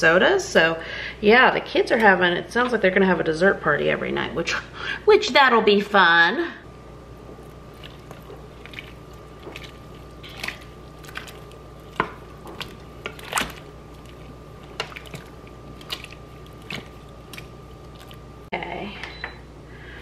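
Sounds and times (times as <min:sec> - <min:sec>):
wooden spoon stirring dumplings: 0:07.2 - 0:18.4.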